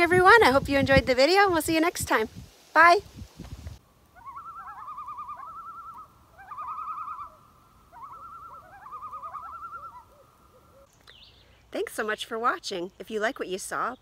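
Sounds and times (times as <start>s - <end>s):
loons quavering laughing calls: 4.2s - 10.9s.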